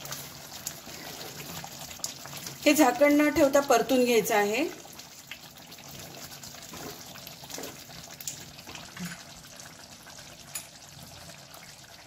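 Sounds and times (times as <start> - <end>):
gravy bubbling and sizzling: 0.0 - 12.0.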